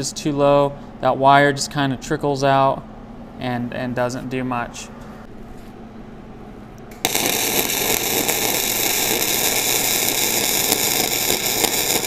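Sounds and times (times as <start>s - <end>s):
welding arc sizzling: 6.9s - 12.0s.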